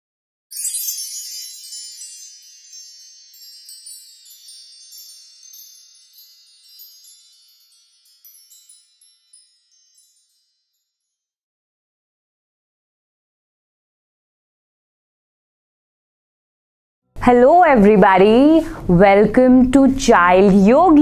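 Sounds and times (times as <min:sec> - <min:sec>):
tinkling chimes: 0:00.5 - 0:11.4.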